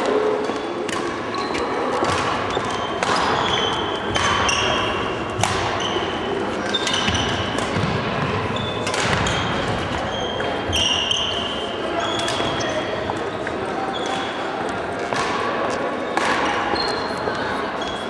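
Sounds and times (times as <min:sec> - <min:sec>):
rackets striking shuttlecock: 0:00.0 - 0:10.0, 0:15.0 - 0:16.8
sneakers squeaking on wooden floor: 0:00.4 - 0:14.5, 0:16.7 - 0:17.1.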